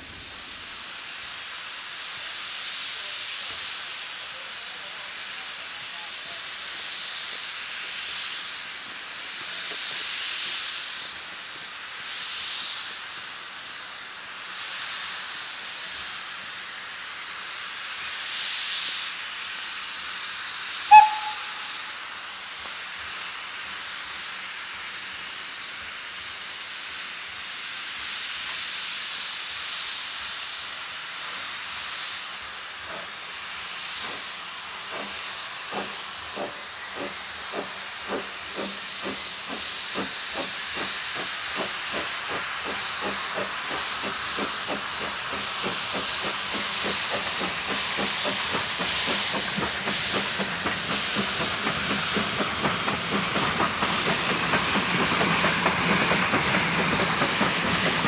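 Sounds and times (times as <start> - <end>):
steam hissing: 0.0 - 58.0
steam whistle toot: 20.9 - 22.1
locomotive exhaust chuffs: 33.8 - 58.0.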